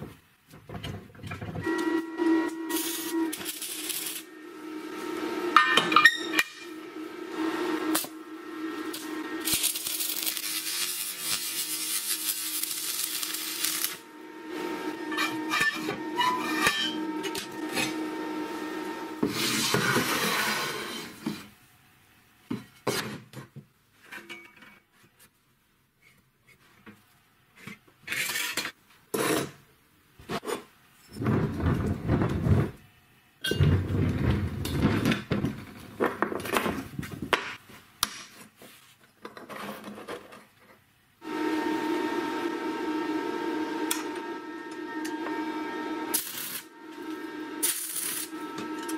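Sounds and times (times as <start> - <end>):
metal scraping: 1.6 - 21.3, 44.3 - 48.9
arc welding crackling: 1.7 - 6.9, 7.6 - 15.7, 43.8 - 48.9.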